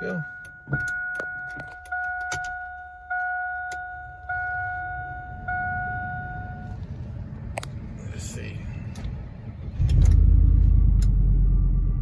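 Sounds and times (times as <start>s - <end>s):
warning chime ding: 0.0s - 6.7s.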